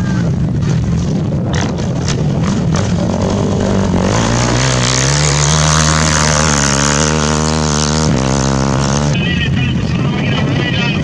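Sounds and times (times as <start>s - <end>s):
quad engine revving hard: 1.4s - 9.2s.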